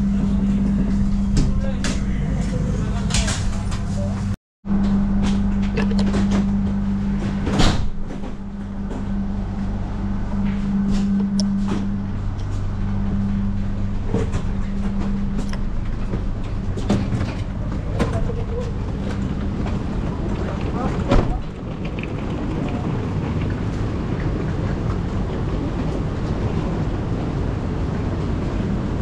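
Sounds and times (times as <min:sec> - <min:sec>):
low train hum: 0:00.0 - 0:29.0
knocks and clicks: 0:04.8 - 0:09.1.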